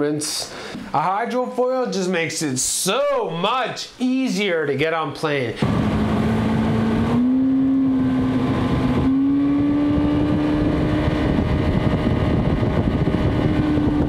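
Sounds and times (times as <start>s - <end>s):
outboard engine running: 5.6s - 14.0s
water and wind rushing: 5.6s - 14.0s.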